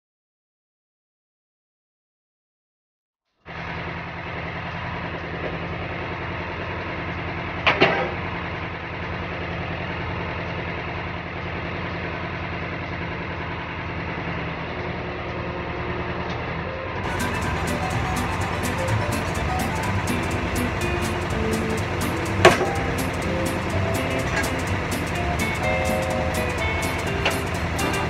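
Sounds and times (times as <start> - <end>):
tractor engine running: 17.0 - 28.0.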